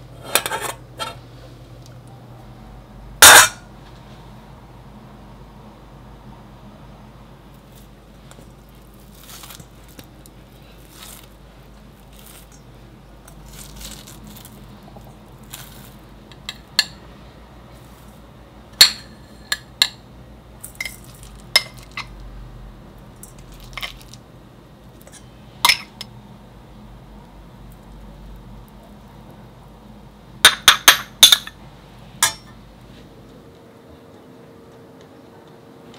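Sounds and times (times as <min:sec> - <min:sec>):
hands tearing cooked meat: 0:08.7 - 0:11.4
glass containers clinking on metal bowl: 0:20.7 - 0:22.1.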